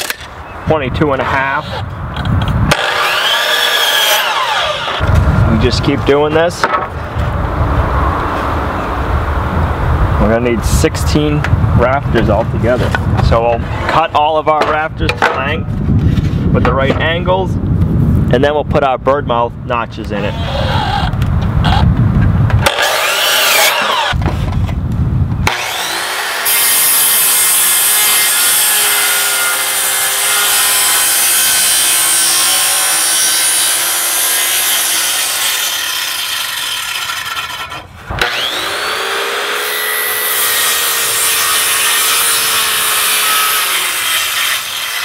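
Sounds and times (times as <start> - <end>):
circular saw cutting wood: 2.7 - 5.0, 20.2 - 21.1, 22.6 - 24.3, 25.4 - 45.0.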